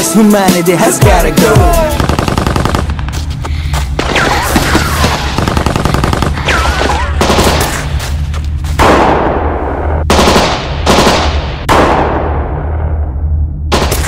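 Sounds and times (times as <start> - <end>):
heavy echoing gunshots: 1.8 - 3.1, 4.0 - 8.0, 8.8 - 14.0
automatic gunfire burst: 2.0 - 2.9, 4.0 - 7.7, 10.1 - 11.3
steady low rumble: 7.2 - 14.0.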